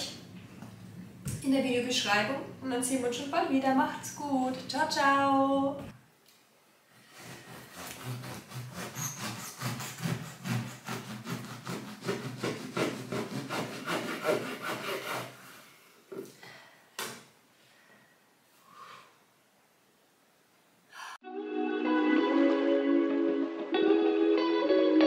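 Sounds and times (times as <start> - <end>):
bread knife sawing through crusty loaf: 7.0 - 15.6.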